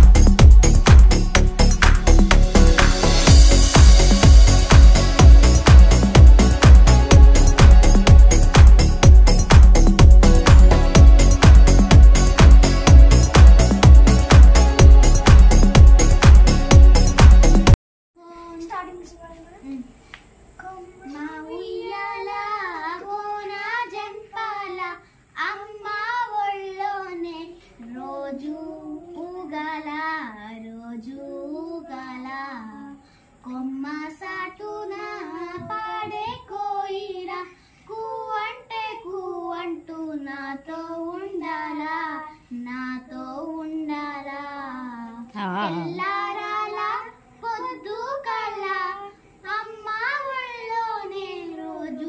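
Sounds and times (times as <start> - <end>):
girls singing unaccompanied: 20.6 - 52.0.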